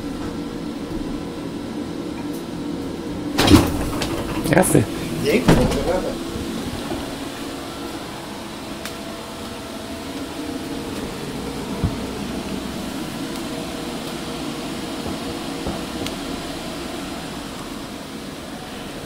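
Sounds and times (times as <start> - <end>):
ventilation fans whirring: 0.0 - 19.0.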